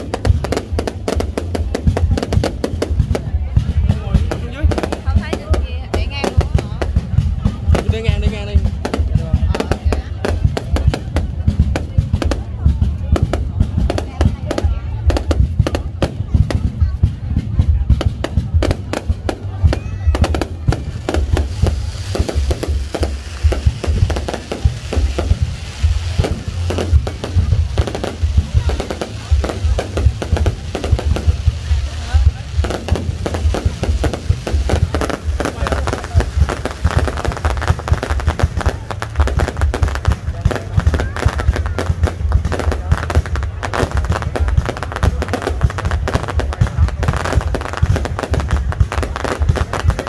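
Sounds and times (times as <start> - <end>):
crackling fizz of fireworks: 0.0 - 50.0
deep booming thumps: 0.0 - 50.0
fireworks bangs: 0.0 - 50.0
low rumble: 0.0 - 50.0.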